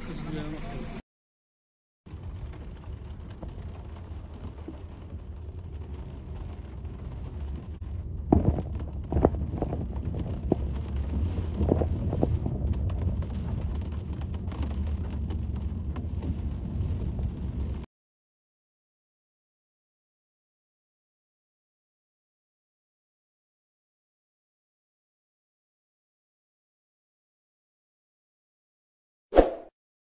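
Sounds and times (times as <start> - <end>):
car interior rumble: 2.1 - 17.8.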